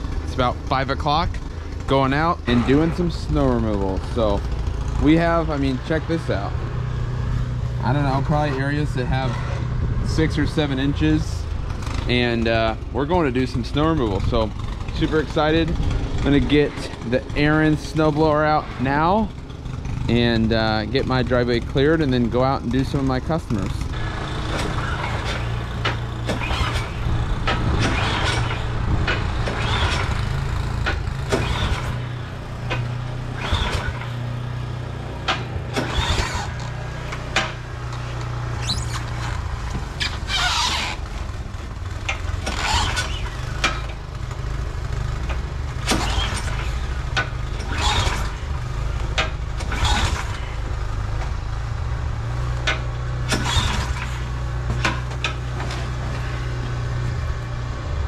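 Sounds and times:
steady low rumble: 0:00.0 - 0:24.2, 0:26.8 - 0:34.4
recoil starter cord rasping: 0:00.0 - 0:57.7
snowblower engine cranking: 0:00.0 - 0:58.0.

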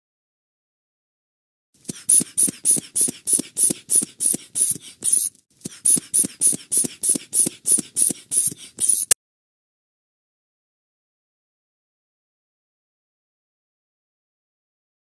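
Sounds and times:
hissy rhythmic strokes: 0:01.9 - 0:09.2.

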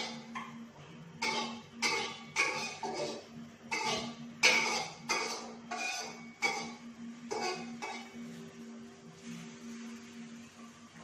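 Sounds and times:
dishes and cutlery clattering: 0:01.2 - 0:08.2.

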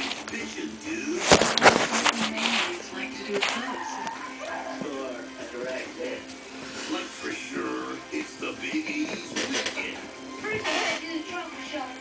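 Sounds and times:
music with singing from television: 0:00.0 - 0:12.0.

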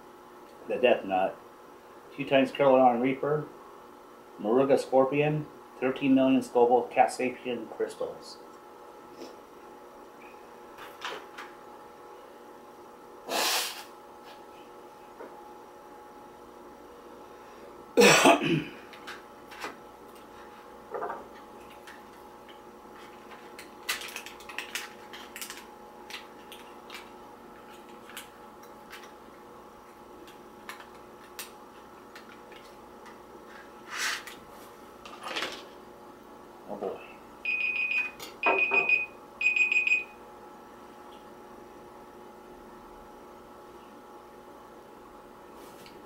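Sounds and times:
sniffs: 0:13.3 - 0:13.9
man coughing: 0:18.0 - 0:18.9.

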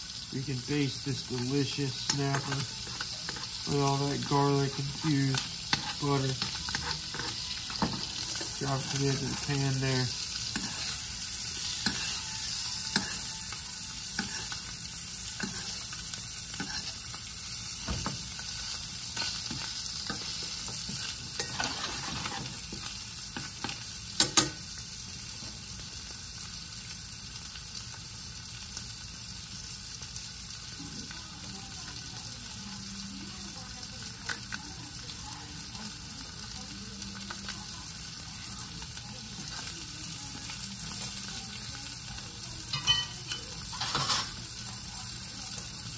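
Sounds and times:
fish sizzling in frying pan: 0:00.0 - 0:45.9
metal spoon scraping a pan: 0:01.2 - 0:17.2, 0:17.8 - 0:24.4, 0:42.7 - 0:44.4.

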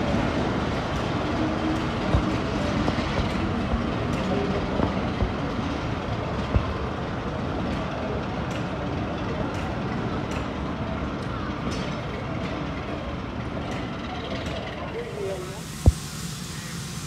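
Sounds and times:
locomotive engine hum: 0:00.0 - 0:17.0
rumble of train coaches: 0:00.0 - 0:17.0
wheels knocking over rail joints: 0:01.0 - 0:07.9.

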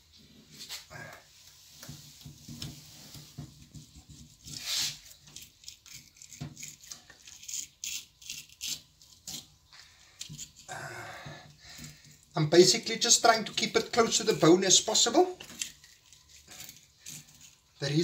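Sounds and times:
knife scraping: 0:03.8 - 0:09.6, 0:13.5 - 0:18.0
knife sawing through fish: 0:04.2 - 0:09.5.

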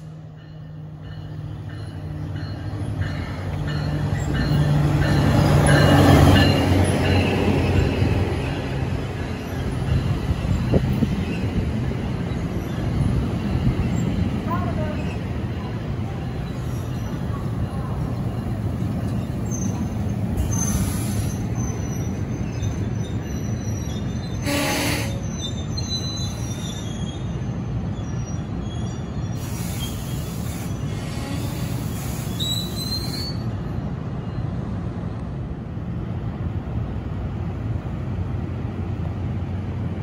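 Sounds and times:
train coaches rumbling on rails: 0:00.0 - 0:40.0
high wheel squeals: 0:16.4 - 0:33.5.

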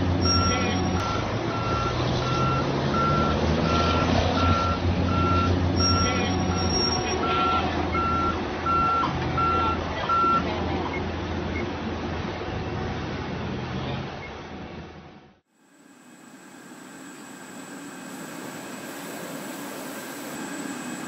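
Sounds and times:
heavy vehicle engine running: 0:00.0 - 0:21.0
reversing alarm beeping: 0:00.1 - 0:10.4, 0:15.8 - 0:21.0.

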